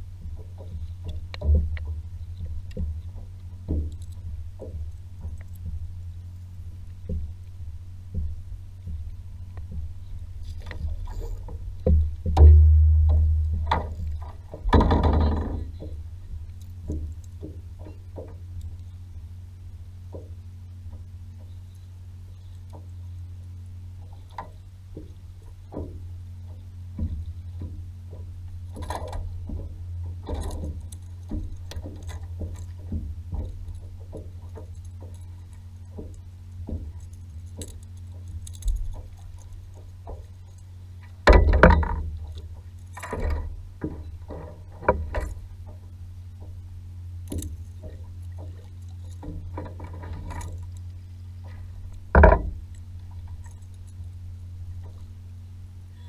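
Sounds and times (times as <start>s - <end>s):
water lapping against a hull: 0.0s - 56.0s
loud thumps: 11.8s - 16.0s
knocks and clicks on a board: 51.5s - 52.6s.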